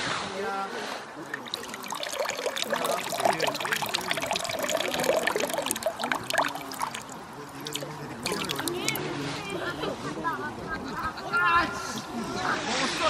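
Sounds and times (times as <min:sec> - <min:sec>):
water sloshing and splashing: 0:01.2 - 0:09.1.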